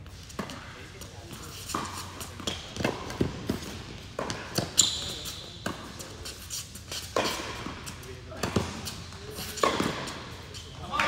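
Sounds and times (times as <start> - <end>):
tennis ball struck by racquets: 1.7 - 4.8, 8.4 - 9.0, 9.6 - 10.3
tennis ball bouncing on court: 1.7 - 6.0, 7.1 - 10.3
sneaker squeak: 3.5 - 7.6.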